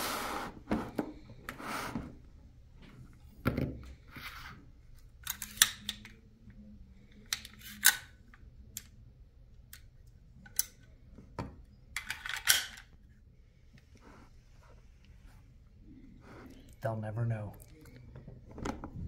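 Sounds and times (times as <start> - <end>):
metallic clicks of pistol parts: 5.2 - 6.2, 7.1 - 8.1, 9.7 - 11.0, 12.0 - 12.9.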